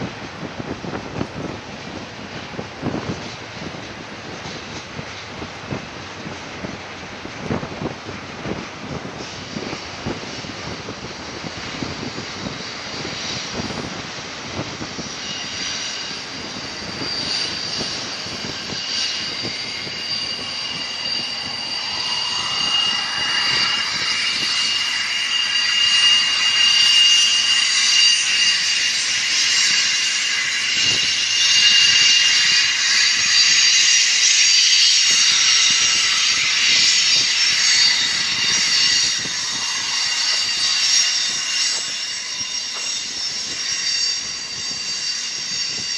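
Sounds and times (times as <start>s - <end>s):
freight train rolling: 0.0s - 45.9s
high-pitched wheel squealing: 14.6s - 45.9s.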